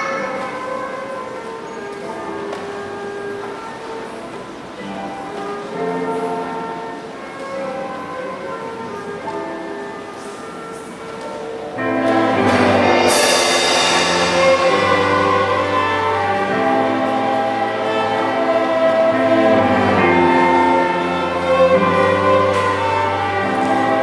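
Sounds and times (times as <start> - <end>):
orchestra playing full chords: 2.0 - 8.2, 8.8 - 24.0
cymbal crash: 11.8 - 18.6.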